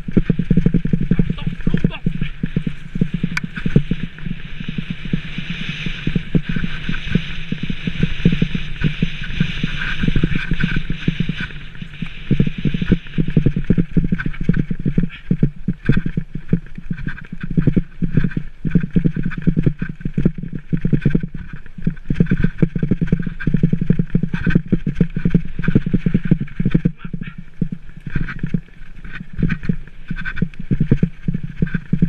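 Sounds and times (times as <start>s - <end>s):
tyres rushing on dirt: 0.0s - 12.1s
bike rattling and knocking: 0.0s - 32.0s
wind on microphone: 0.0s - 32.0s.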